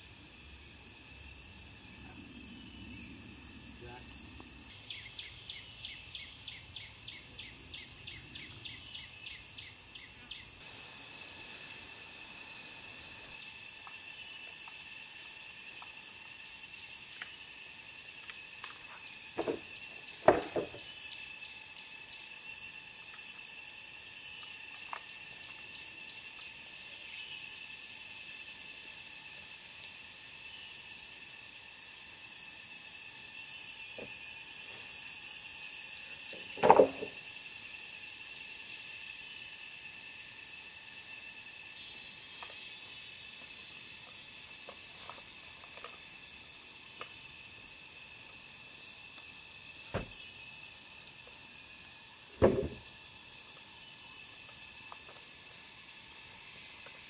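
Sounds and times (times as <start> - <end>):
steady high background hiss: 0.0 - 57.0
wooden poles dropped on dirt: 19.4 - 20.8, 36.4 - 37.2, 52.4 - 52.8.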